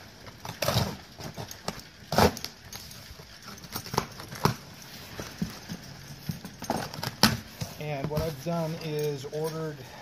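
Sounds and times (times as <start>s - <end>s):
packing tape being slit: 0.2s - 2.9s.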